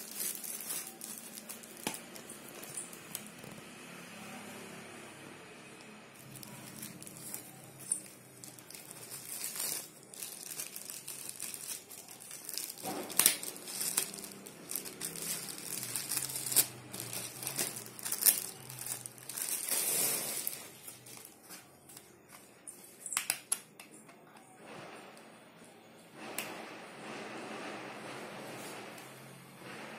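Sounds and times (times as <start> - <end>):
plastic wrapping crinkling: 0.0 - 3.6, 6.2 - 23.5.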